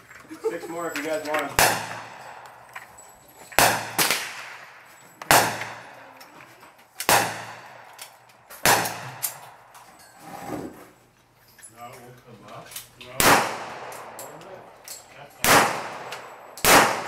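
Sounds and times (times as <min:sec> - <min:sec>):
pistol shots echoing: 0:01.6 - 0:02.8, 0:03.5 - 0:06.1, 0:07.0 - 0:09.7, 0:13.2 - 0:14.8, 0:15.4 - 0:17.0.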